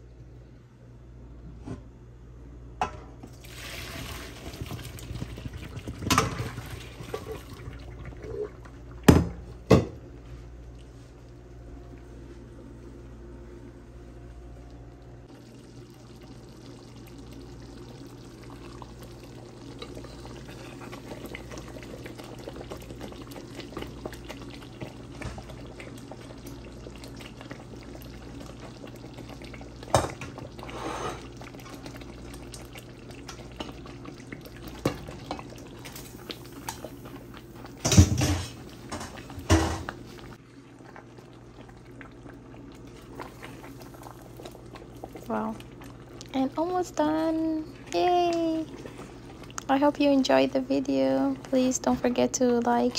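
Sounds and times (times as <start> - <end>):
sauce bubbling in a pot: 3.2 - 12.3, 14.1 - 52.9
steady low hum: 4.3 - 52.9.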